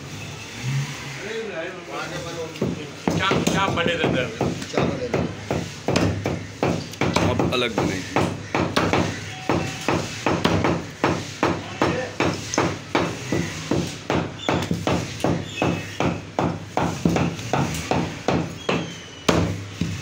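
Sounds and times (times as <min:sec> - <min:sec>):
cleaver chopping on wooden block: 0:02.6 - 0:20.0.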